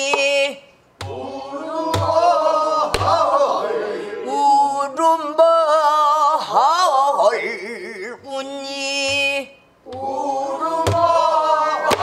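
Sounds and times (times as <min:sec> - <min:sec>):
person singing a lament: 0:04.0 - 0:12.0.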